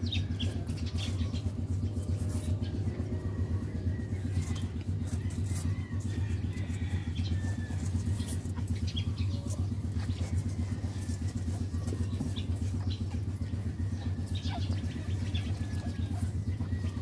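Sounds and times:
steady low hum: 0.0s - 17.0s
puppies squeaking: 7.4s - 17.0s.

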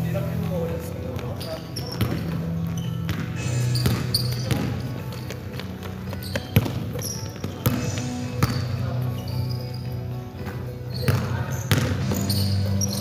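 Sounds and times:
basketball bouncing on gym floor: 1.0s - 8.8s, 10.4s - 13.0s
shoe squeaks: 1.2s - 13.0s.

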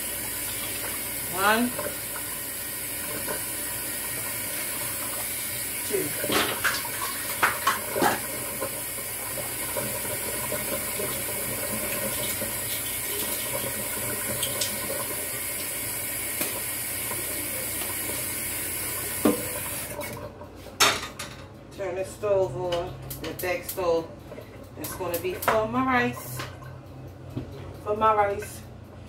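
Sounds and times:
faucet running into plastic tub: 0.0s - 20.3s.

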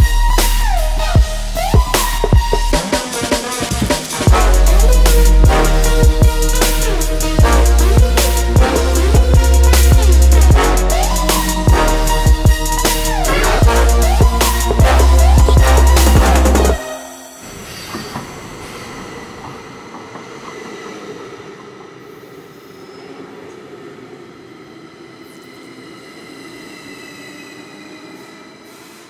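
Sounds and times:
loud music with heavy beat: 0.0s - 17.0s
high wheel squeal: 0.0s - 20.6s
subway train rumbling: 0.0s - 29.0s.

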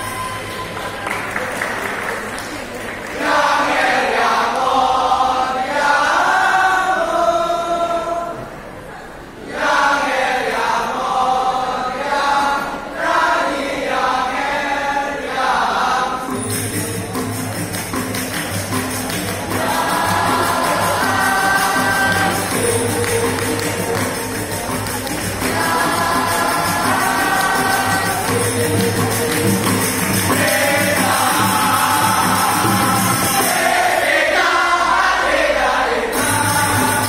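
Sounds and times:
clapping: 0.2s - 3.4s, 17.6s - 19.8s, 22.1s - 26.0s
vocal ensemble singing: 2.9s - 37.0s
hand drums: 16.3s - 34.0s, 36.1s - 37.0s.

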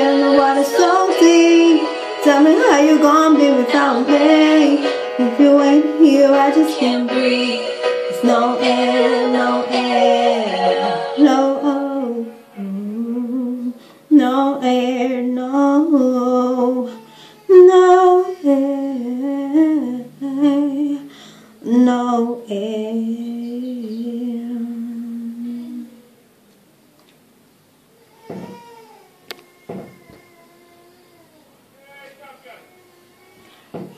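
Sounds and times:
woman singing: 0.0s - 26.1s.

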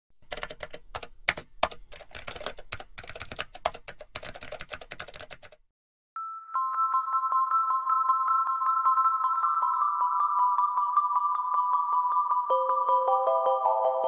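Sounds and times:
keyboard typing clicks: 0.2s - 5.6s
chime-like musical note: 6.2s - 14.0s.

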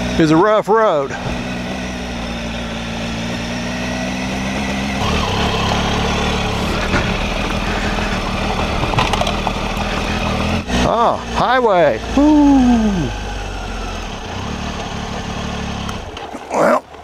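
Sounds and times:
motorcycle engine running: 0.0s - 17.0s
road noise: 0.0s - 17.0s.

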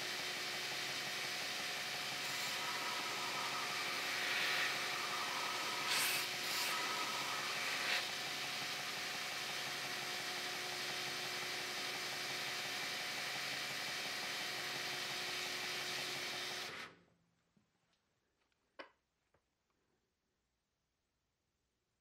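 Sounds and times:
belt grinder running: 0.0s - 16.8s.

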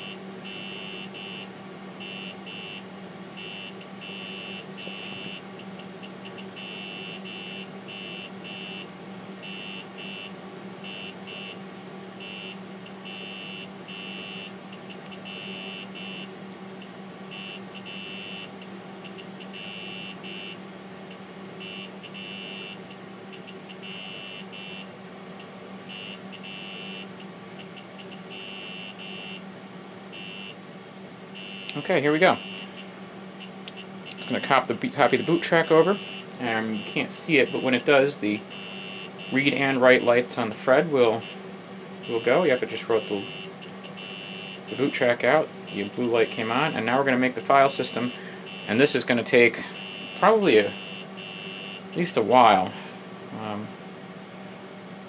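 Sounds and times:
low electrical hum: 0.0s - 55.0s
high-pitched electronic whine: 31.4s - 41.4s, 42.0s - 52.7s.

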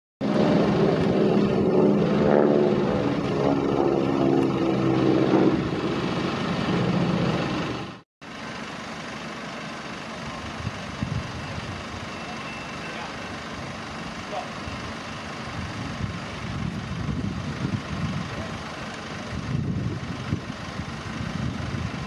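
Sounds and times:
propeller aircraft engine drone: 0.2s - 22.0s.

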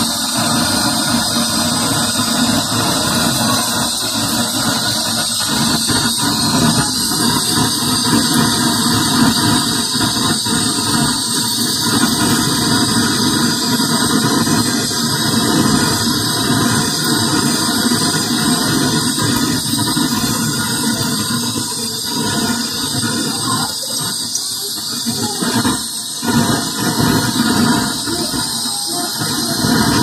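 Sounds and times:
torch flame hissing: 0.0s - 30.0s.

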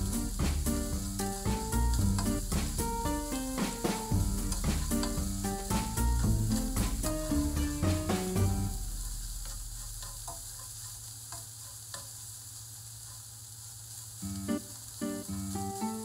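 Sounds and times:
background music: 0.0s - 8.8s
meat sizzling in a frying pan: 0.0s - 16.0s
spatula tapping on a pan: 0.4s - 12.1s.

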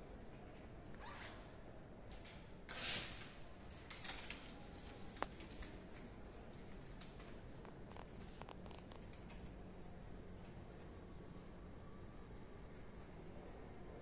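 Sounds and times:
paper handling rustles: 3.6s - 9.5s.

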